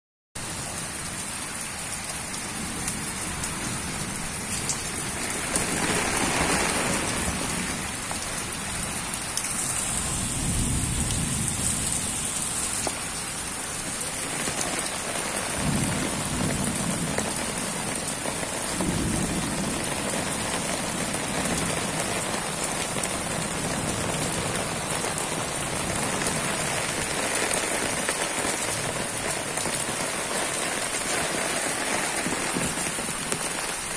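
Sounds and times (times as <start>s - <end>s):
heavy rain on trees: 0.4s - 33.9s.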